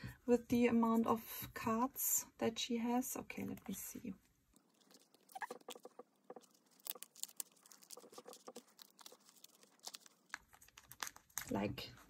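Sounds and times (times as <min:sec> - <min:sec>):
plastic card sleeves rustling: 0:04.6 - 0:12.0.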